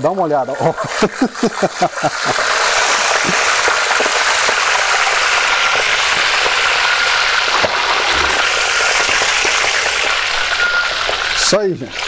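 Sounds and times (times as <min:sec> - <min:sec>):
fish sizzling in hot oil: 0:00.1 - 0:12.0
oil popping: 0:00.7 - 0:12.0.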